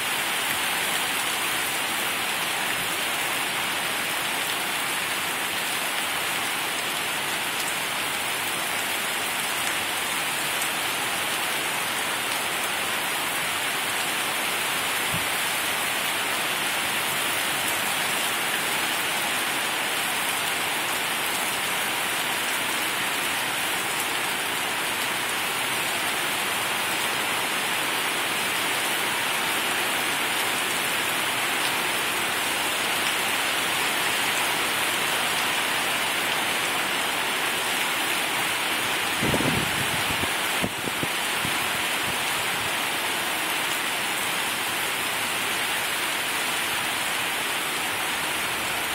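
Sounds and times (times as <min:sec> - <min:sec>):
heavy rain hissing: 0:31.9 - 0:48.9.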